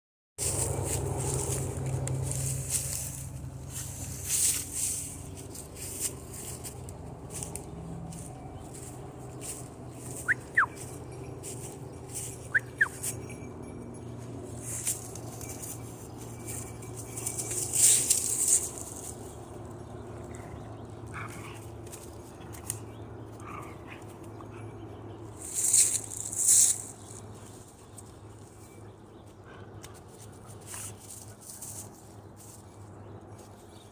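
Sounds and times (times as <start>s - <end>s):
stick swishing through leaves: 0.4s - 8.2s, 25.4s - 26.9s
dry leaves rustling and crunching: 0.4s - 13.2s, 14.4s - 19.8s, 25.4s - 27.9s, 30.2s - 33.8s.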